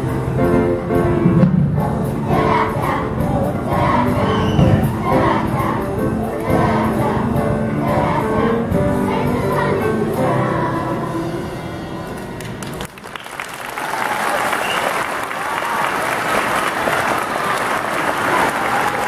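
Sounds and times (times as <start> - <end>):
children's choir singing: 0.0 - 12.6
people clapping: 12.2 - 19.0.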